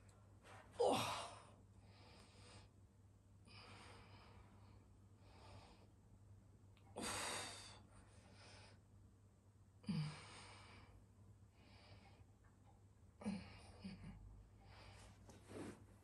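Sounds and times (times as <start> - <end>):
woman breathing deeply: 3.4 - 6.0, 6.9 - 8.9, 9.8 - 12.3.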